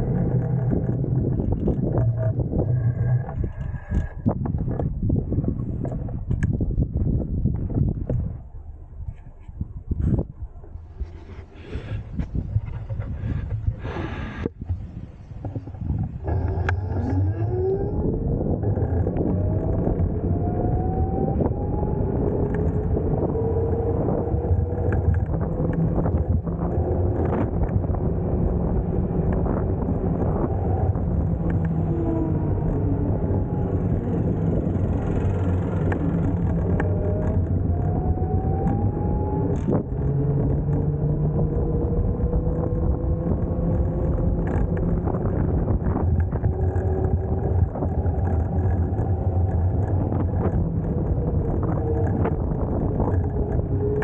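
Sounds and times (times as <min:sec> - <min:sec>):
wind and road noise: 0:00.0 - 0:54.0
electric scooter motor whining: 0:16.2 - 0:54.0.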